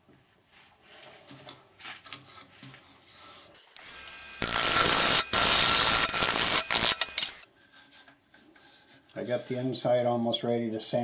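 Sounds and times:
turning tool shaving wood: 3.8s - 7.4s.

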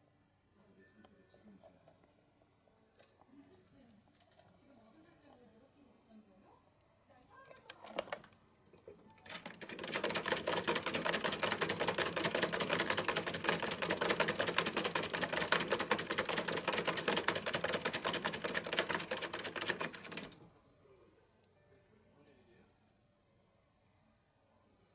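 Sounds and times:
exercise wheel clattering: 9.2s - 20.4s.

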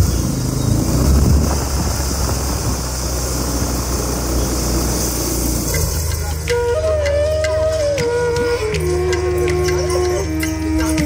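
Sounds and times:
wind rumbling on microphone: 0.0s - 6.1s
motorcycle engine running: 0.0s - 6.6s.

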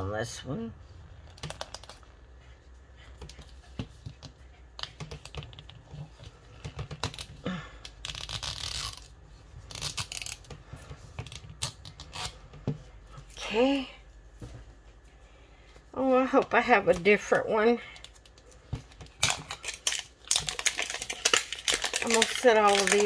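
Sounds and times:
plastic wrapper rustling and tearing: 1.2s - 2.2s, 5.0s - 10.5s, 18.0s - 23.0s.

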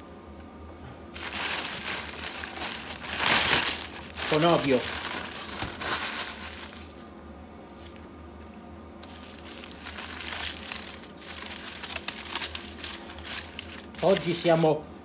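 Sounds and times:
plastic bag crumpling: 1.2s - 7.2s, 9.0s - 14.7s
aluminium foil crinkling: 1.2s - 8.0s, 9.0s - 14.8s.

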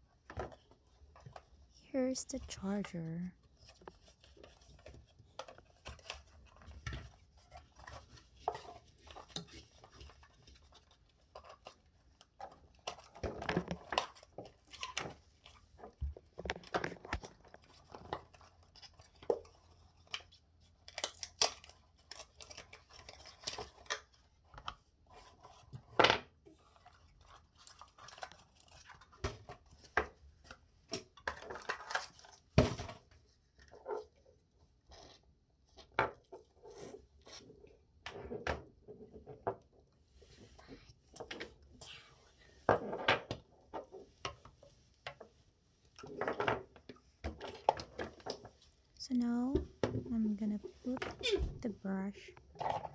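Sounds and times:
cardboard and plastic rustling: 3.0s - 52.9s.

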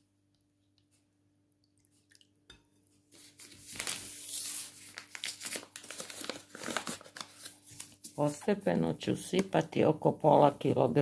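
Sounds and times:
bag of flour rustling and crinkling: 3.2s - 8.5s.

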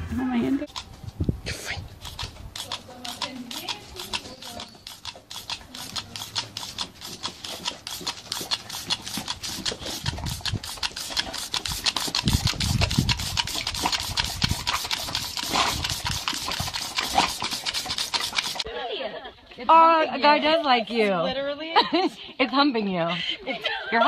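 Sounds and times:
water spray spattering: 2.0s - 18.6s
rapid even ticking: 2.0s - 18.7s.

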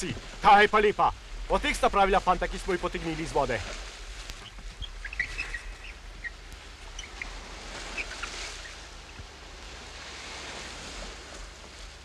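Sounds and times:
sea water lapping against rocks: 0.0s - 12.0s
high bird chirps: 4.4s - 7.3s, 7.9s - 8.8s.

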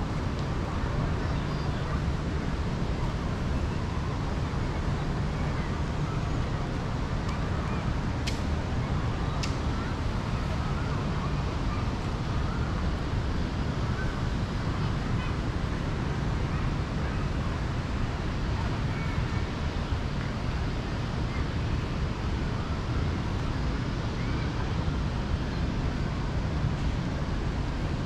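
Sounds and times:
city low rumble: 0.0s - 28.0s.

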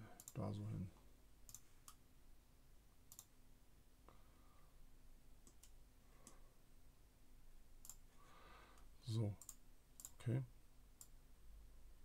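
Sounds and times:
faint computer mouse clicks: 3.1s - 3.3s, 5.4s - 6.4s, 7.8s - 8.0s, 8.8s - 10.2s.

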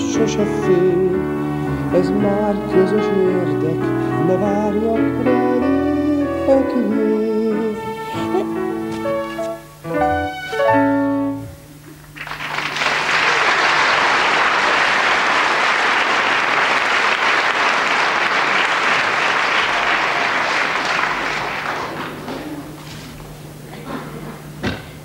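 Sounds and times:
musical accompaniment chords: 0.0s - 12.2s
audience applauding: 12.1s - 22.7s.

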